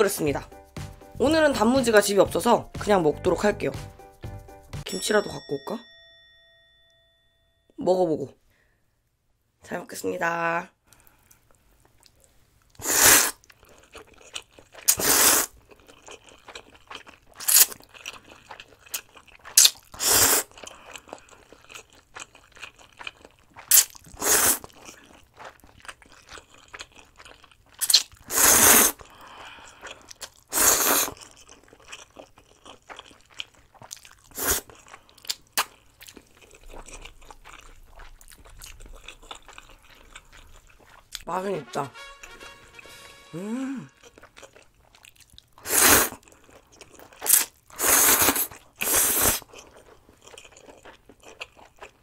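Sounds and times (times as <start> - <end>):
wet chewing: 10.9 - 41.3, 43.8 - 52.0
slurping noodles: 12.8 - 13.5, 14.8 - 15.6, 19.5 - 20.7, 23.6 - 25.0, 27.8 - 29.2, 30.0 - 31.3, 34.3 - 34.9, 45.6 - 46.5, 47.2 - 49.5.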